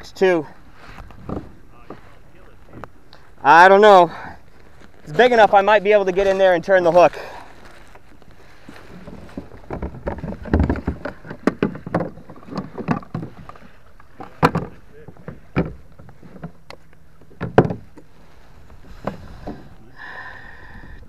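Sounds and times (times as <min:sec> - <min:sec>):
knocks on plastic kayak hull: 0:17.4 - 0:17.9.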